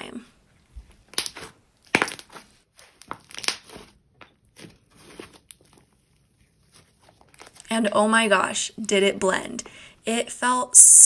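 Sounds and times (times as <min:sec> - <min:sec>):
slime crackling and squishing: 0:00.8 - 0:07.7.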